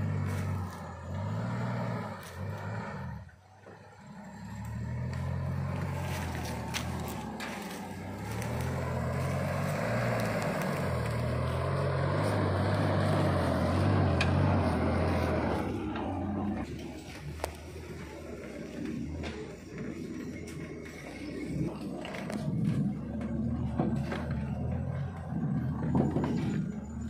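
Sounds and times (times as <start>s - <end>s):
truck engine revving in low gear: 0.0s - 27.0s
sticks snapping under tyres: 4.6s - 16.1s.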